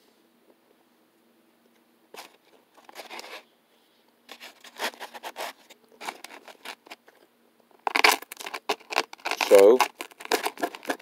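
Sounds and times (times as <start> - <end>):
knife and fork scraping paper plate: 9.2 - 11.0.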